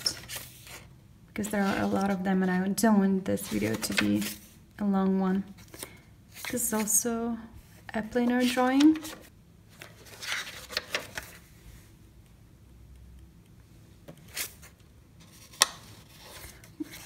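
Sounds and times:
paper pages rustling: 0.0s - 0.9s, 1.5s - 2.2s, 3.4s - 4.5s, 8.3s - 11.5s, 14.1s - 17.0s.

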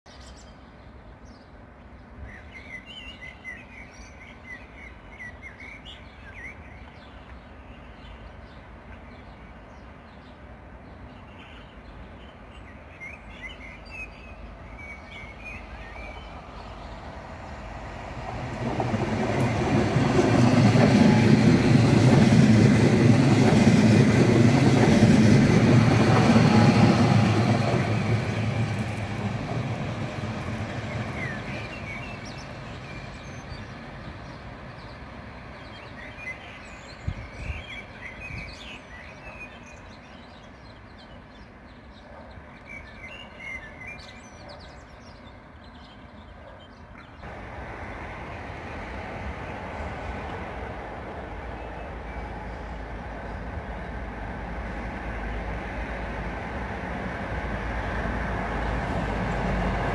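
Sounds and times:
birds chirping: 2.4s - 56.4s
train passing with rumble: 6.6s - 44.6s, 45.2s - 59.9s.

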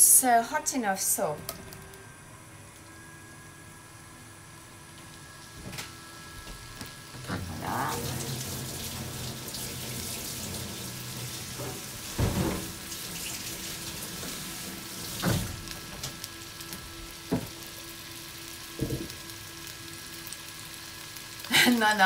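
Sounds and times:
meat sizzling in oil: 7.0s - 22.0s.

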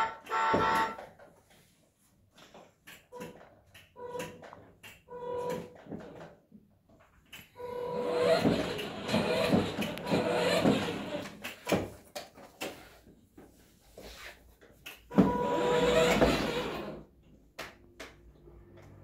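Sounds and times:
plastic wheels rolling on floor: 7.0s - 12.9s, 15.1s - 17.1s
toy car motors whirring: 7.6s - 11.6s, 15.3s - 17.1s.

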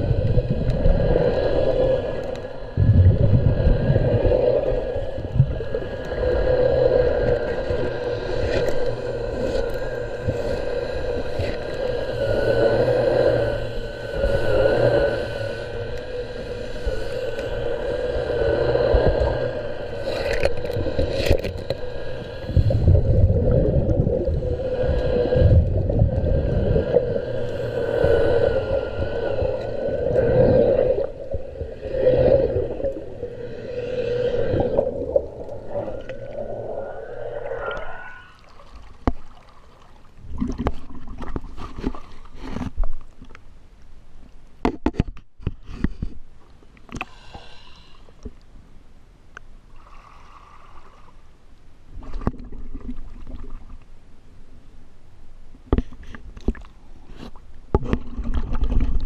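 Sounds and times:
water splashes: 0.0s - 43.2s
low rumbling water noise: 0.0s - 59.0s
underwater mechanical hum: 0.0s - 59.0s.

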